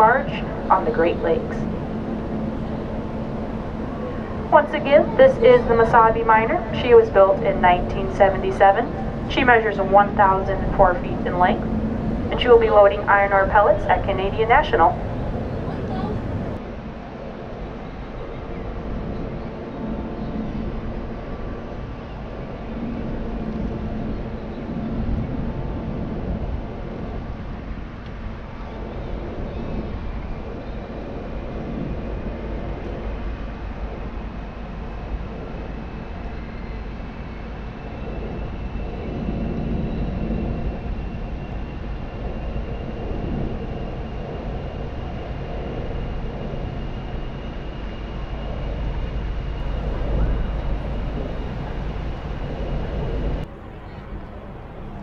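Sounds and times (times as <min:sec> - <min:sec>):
ship engines rumbling: 0:00.0 - 0:16.6, 0:36.9 - 0:55.0
faint high whine: 0:00.0 - 0:55.0.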